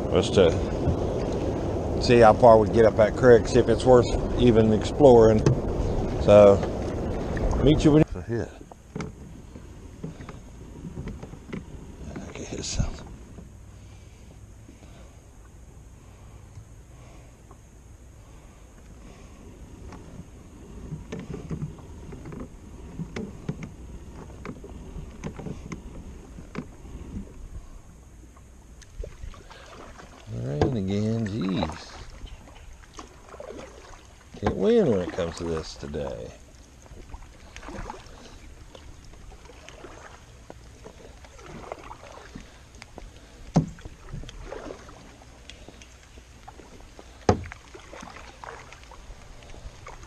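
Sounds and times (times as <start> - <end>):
low rumble: 0.0 - 33.7
paddle splashing through water: 0.6 - 15.5, 18.3 - 50.0
kayak knocks and clicks: 5.4 - 7.6, 8.6 - 13.5, 20.8 - 27.3, 30.4 - 31.0, 32.2 - 35.5, 38.6 - 50.0.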